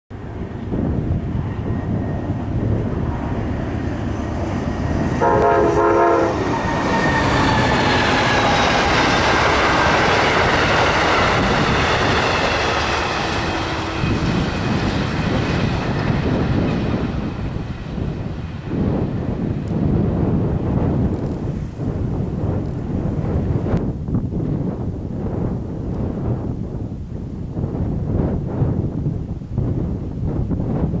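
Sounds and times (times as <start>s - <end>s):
train engine and wheel noise: 0.1s - 31.0s
train horn: 4.7s - 15.6s.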